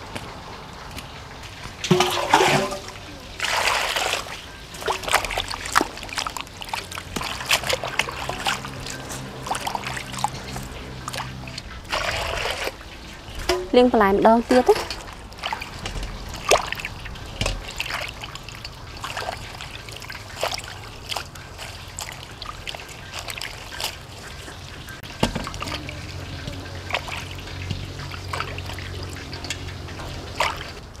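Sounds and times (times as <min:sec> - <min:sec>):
hands splashing greens in water: 0:17.6 - 0:24.0.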